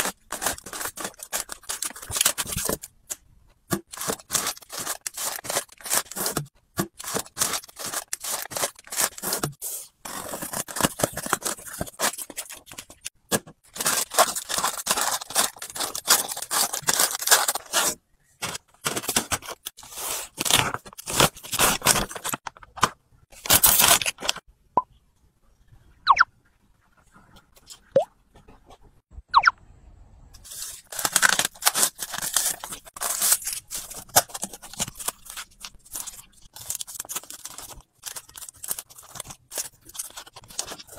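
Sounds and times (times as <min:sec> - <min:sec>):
plastic wrappers crinkling: 0:00.0 - 0:02.9, 0:13.7 - 0:19.7, 0:30.5 - 0:40.9.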